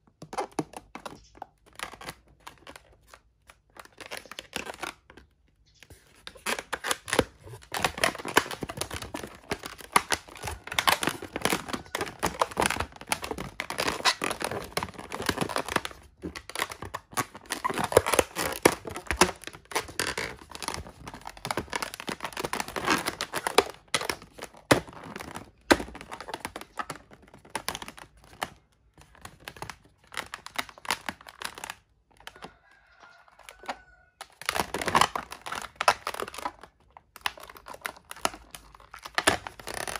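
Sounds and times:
balloons squeaking and rubbing: 3.8s - 28.1s, 37.3s - 39.9s.

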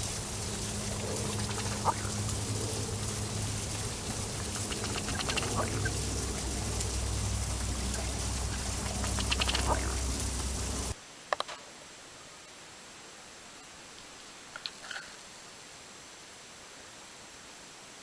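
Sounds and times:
steady low hum: 0.0s - 11.0s
faint clicks: 0.0s - 11.7s
duck quick ticking: 0.9s - 2.2s, 4.5s - 10.9s.

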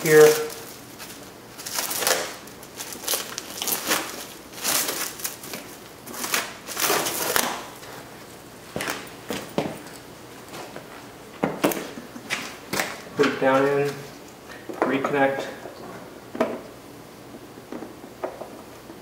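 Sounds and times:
plastic film peeling and crinkling: 0.0s - 8.0s.

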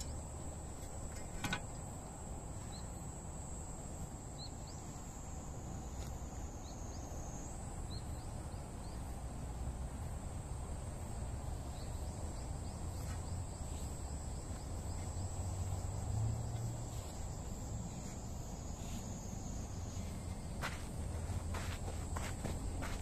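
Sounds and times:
high insect drone: 0.0s - 23.0s
shoes stepping on soil: 19.9s - 23.0s.

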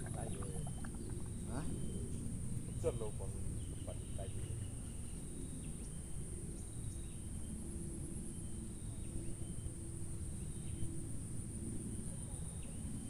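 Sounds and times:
wind on microphone: 0.0s - 2.0s
insects droning: 0.0s - 13.0s.

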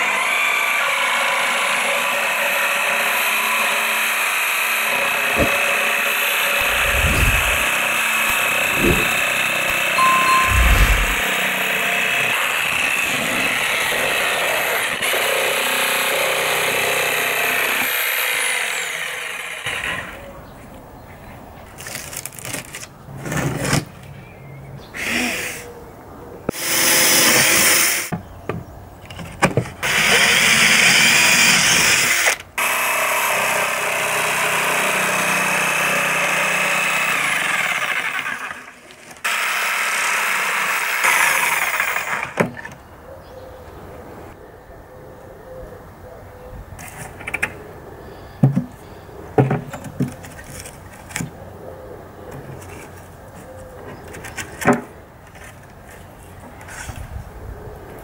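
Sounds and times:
electric jigsaw cutting: 0.0s - 9.9s, 10.8s - 20.0s, 29.8s - 42.4s.

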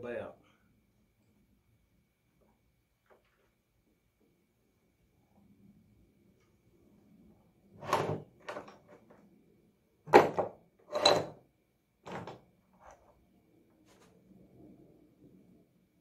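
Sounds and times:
metal parts clanking on wooden bench: 7.8s - 9.0s, 10.1s - 11.4s, 12.1s - 12.5s.

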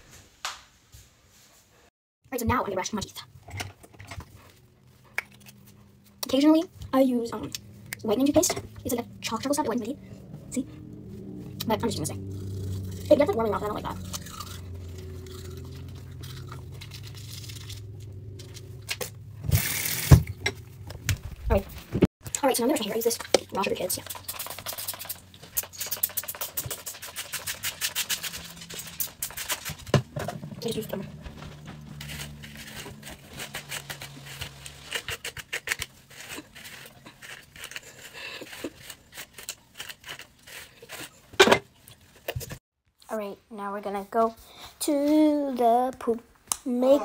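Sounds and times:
low steady hum: 3.6s - 22.0s
toothbrush scrubbing teeth: 4.0s - 20.2s, 22.4s - 41.3s.

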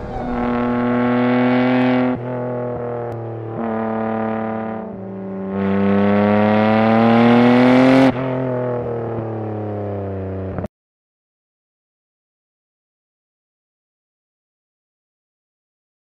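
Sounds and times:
car engine idling and revving: 0.0s - 10.7s.

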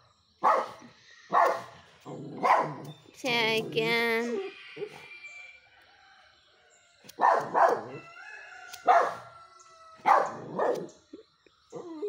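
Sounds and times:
puppy barking: 0.4s - 1.7s, 2.4s - 2.9s, 7.2s - 8.0s, 8.8s - 9.3s, 10.0s - 10.9s.

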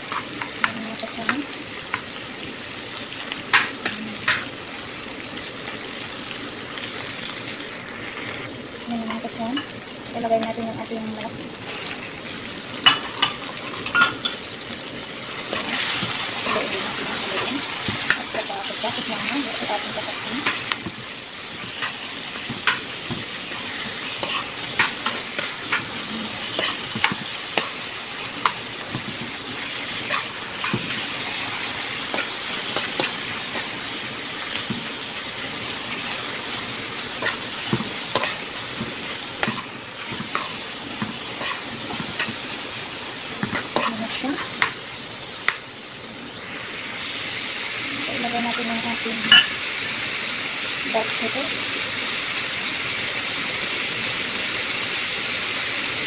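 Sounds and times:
food sizzling in hot oil: 0.0s - 56.0s
spatula scraping pan: 15.4s - 33.8s, 37.1s - 42.5s, 43.4s - 44.8s.

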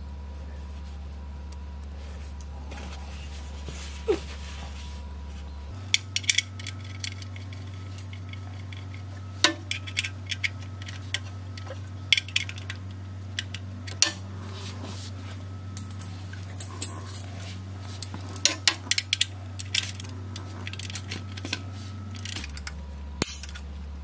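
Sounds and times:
steady low hum: 0.0s - 24.0s
metal tools clinking: 5.8s - 12.8s, 15.7s - 23.7s.

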